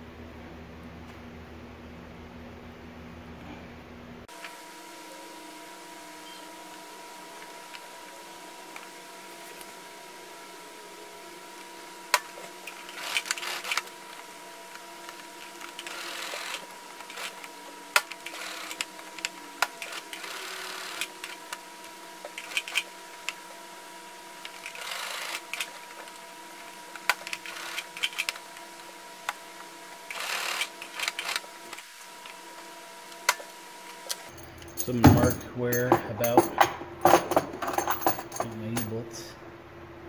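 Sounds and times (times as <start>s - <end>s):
sewing machine stitching: 15.8s - 17.4s.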